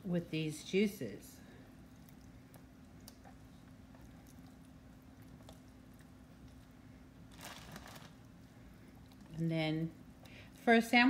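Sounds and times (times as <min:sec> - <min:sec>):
soft squishes of meat slices: 0:01.6 - 0:09.4.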